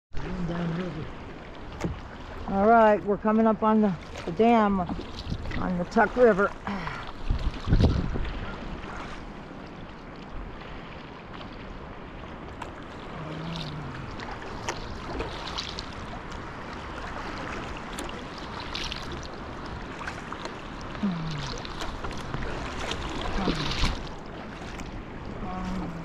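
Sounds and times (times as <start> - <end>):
flowing water: 0.1 - 26.0
paddle splashes: 0.2 - 26.0
wind on microphone: 4.9 - 9.6.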